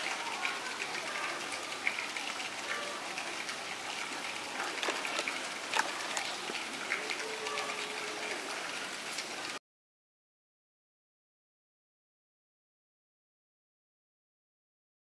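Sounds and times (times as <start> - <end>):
rain pattering: 0.0 - 9.6
water drips: 0.0 - 9.6.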